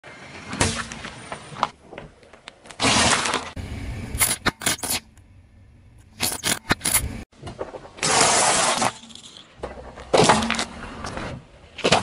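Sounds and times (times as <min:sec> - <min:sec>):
low rumble: 0:03.6 - 0:04.2.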